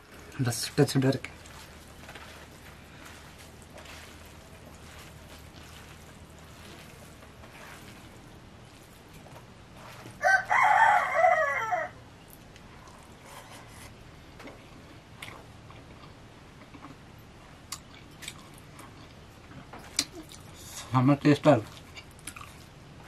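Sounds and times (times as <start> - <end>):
rooster crowing: 10.2 - 12.0.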